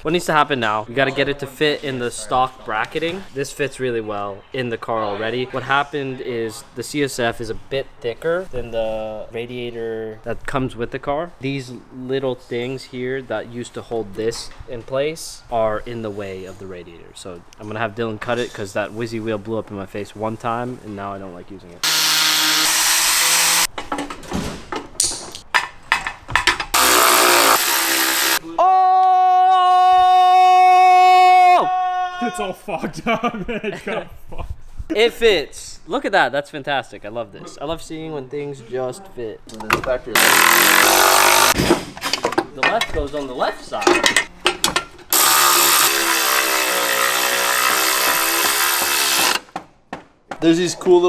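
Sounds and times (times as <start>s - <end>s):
cut-off wheel grinding metal: 21.8s - 23.7s, 26.8s - 28.4s, 40.2s - 41.6s, 45.1s - 49.5s
electric ratchet motor whine: 21.8s - 23.7s, 26.8s - 28.4s, 40.2s - 41.6s, 45.1s - 49.4s
power tool spinning socket: 26.8s - 28.4s, 40.2s - 41.6s, 45.1s - 49.5s
metal clanks and clicks: 43.7s - 45.1s.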